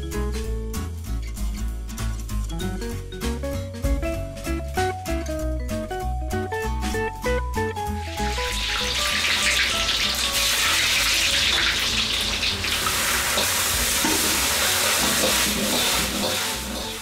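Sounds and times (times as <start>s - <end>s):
faint background music: 0.0s - 17.0s
battered food deep-frying in oil: 7.8s - 17.0s.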